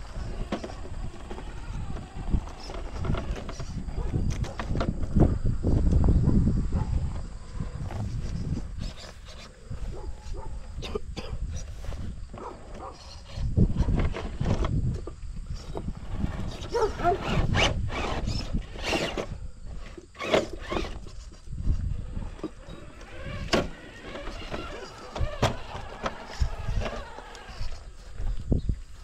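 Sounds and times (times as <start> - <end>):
toy trucks knocking on terrain: 0.0 - 5.2, 17.2 - 21.4, 22.2 - 27.8
electric motors whining: 0.0 - 6.1, 11.6 - 28.6.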